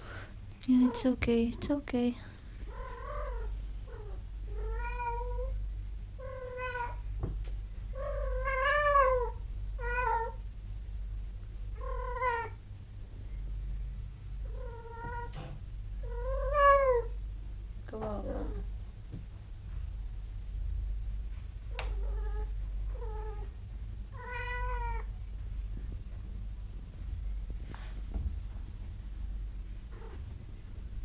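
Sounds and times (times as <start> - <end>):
cat yowling meows: 24.2 - 25.1.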